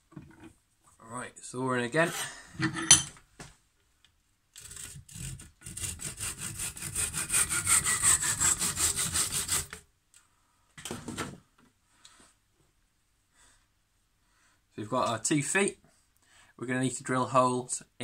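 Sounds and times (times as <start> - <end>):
hand saw cutting wood: 4.6 - 9.8.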